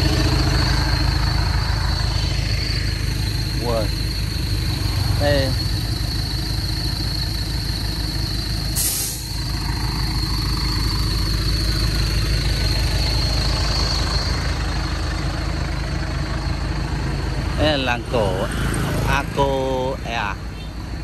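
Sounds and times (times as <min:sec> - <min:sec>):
vehicle engine running: 0:00.0 - 0:21.0
short hiss: 0:08.8 - 0:09.3.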